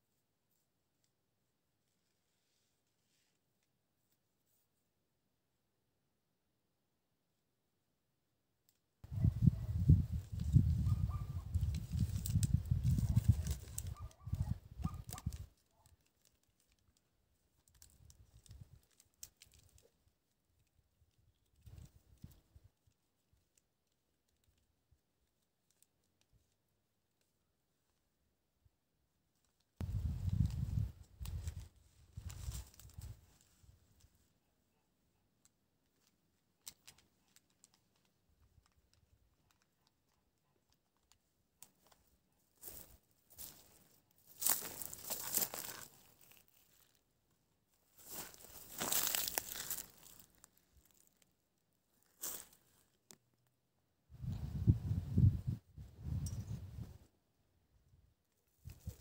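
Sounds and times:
rake and hands working soil: 42.6 - 47.0, 48.0 - 51.1.

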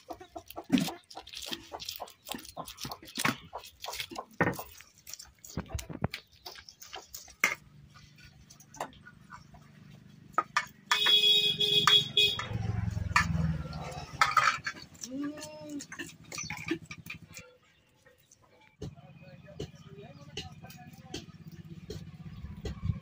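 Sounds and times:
steel bowls clinking: 12.0 - 17.6.

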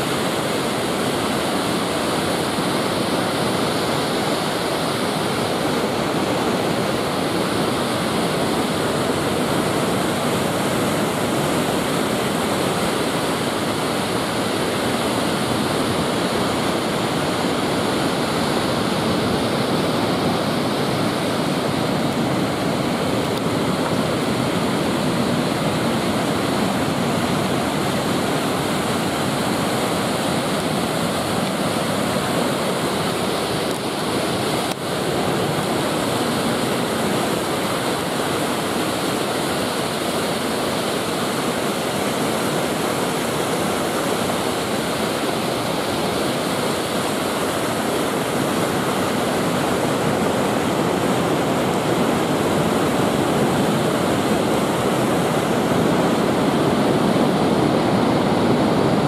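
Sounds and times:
waterfall rushing over rocks: 0.0 - 59.0.

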